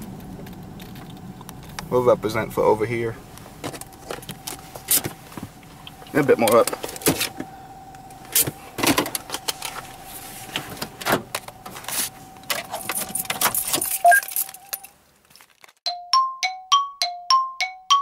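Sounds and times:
car warning tone: 1.1 - 14.9
car keys jangling: 11.0 - 15.5.

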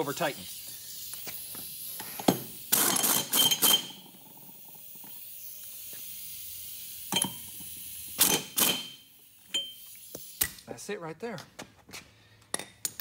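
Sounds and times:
socket wrench ratcheting: 2.0 - 4.0.

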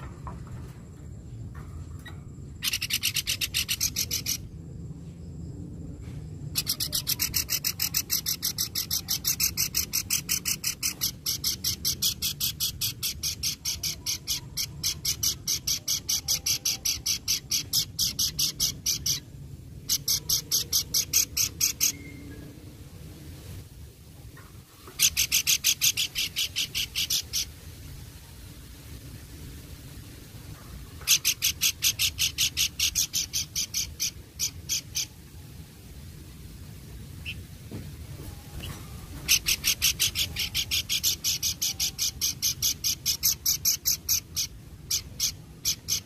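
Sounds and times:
bird rasping chatter: 2.6 - 4.5, 6.5 - 22.1, 24.9 - 27.5, 31.0 - 35.1, 38.6 - 46.0.

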